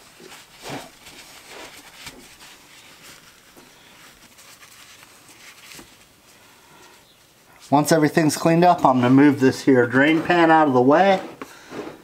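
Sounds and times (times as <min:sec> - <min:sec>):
paper towel rubbing: 0:00.0 - 0:12.0
scratchy noises: 0:07.7 - 0:12.0.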